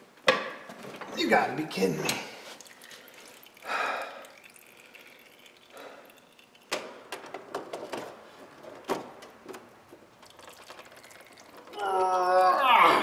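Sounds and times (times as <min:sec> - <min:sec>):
oil dripping: 0:02.1 - 0:07.8, 0:09.2 - 0:11.8.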